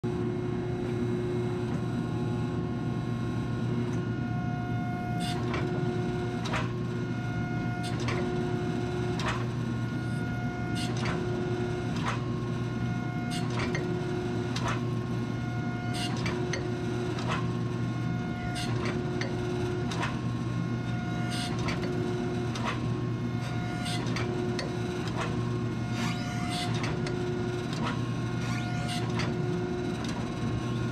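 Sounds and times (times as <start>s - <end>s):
press stroke whine: 0.1s - 19.9s.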